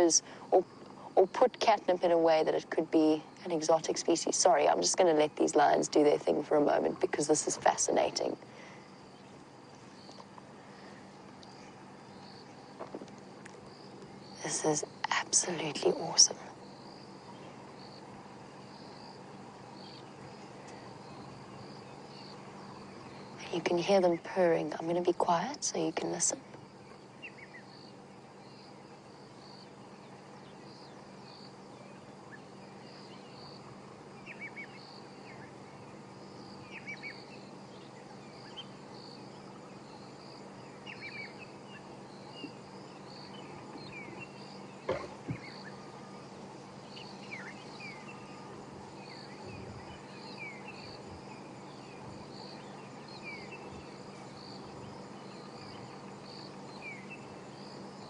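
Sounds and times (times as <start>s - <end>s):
faint low hum: 0.0s - 58.0s
insects chirping: 0.0s - 58.0s
bird chirps: 34.2s - 57.8s.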